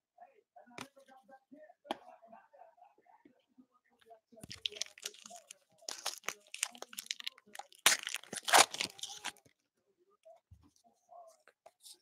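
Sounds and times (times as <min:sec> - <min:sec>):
foil wrapper tearing and crinkling: 0:04.5 - 0:09.4.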